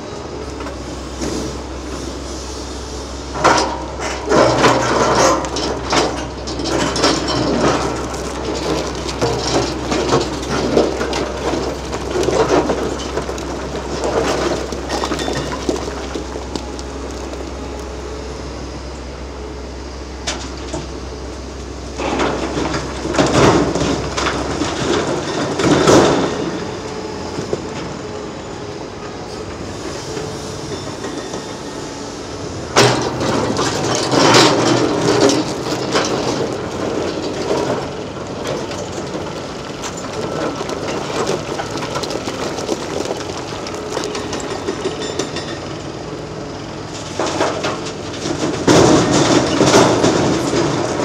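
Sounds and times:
excavator diesel engine under load: 0:00.0 - 0:51.0
rock clattering and scraping: 0:03.4 - 0:18.0, 0:32.8 - 0:45.7.

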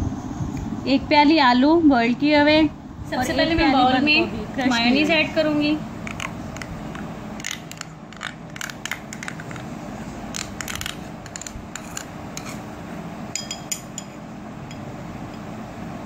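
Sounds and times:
spoon clicking on rims: 0:06.0 - 0:09.7, 0:10.3 - 0:12.6, 0:13.4 - 0:15.4
metal spoon scraping a cup: 0:10.3 - 0:12.7
sharp ringing taps: 0:13.4 - 0:15.4.

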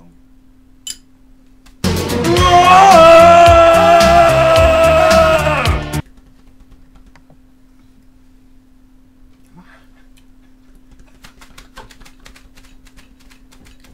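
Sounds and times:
faint electrical hum: 0:00.0 - 0:01.8, 0:06.0 - 0:13.9.

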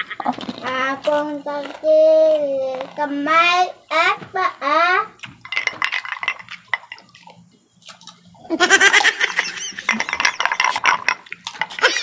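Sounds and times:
eating clicks and crunches: 0:00.0 - 0:03.1, 0:05.2 - 0:08.3, 0:09.9 - 0:12.0
people laughing: 0:08.5 - 0:10.7, 0:11.8 - 0:12.0.

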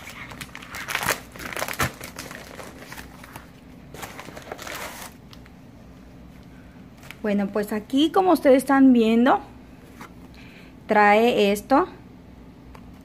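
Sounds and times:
plastic mailer crinkling: 0:00.0 - 0:05.5.

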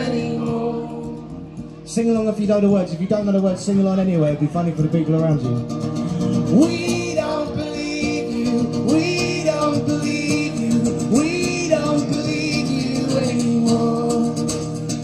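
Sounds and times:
acoustic guitar strumming: 0:00.0 - 0:15.0
person singing: 0:06.4 - 0:14.8.

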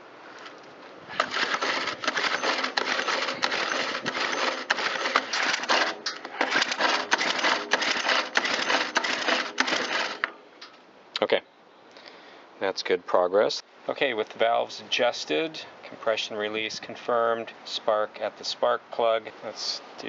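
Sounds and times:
recoil starter rope whirring: 0:01.1 - 0:10.3.

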